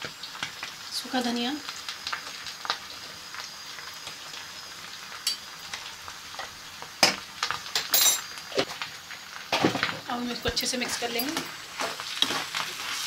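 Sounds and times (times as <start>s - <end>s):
food sizzling in oil: 0.0s - 13.0s
spatula scraping a pan: 11.8s - 13.0s.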